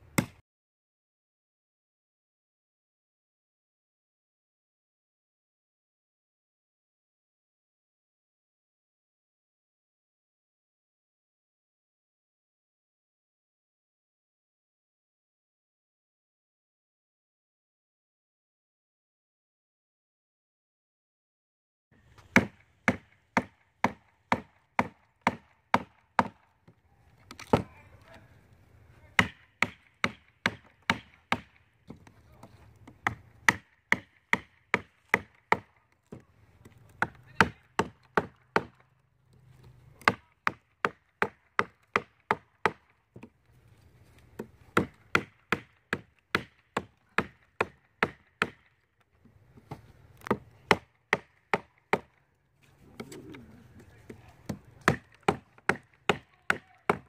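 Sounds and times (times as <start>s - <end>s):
blade chopping into log: 0.2s - 0.4s.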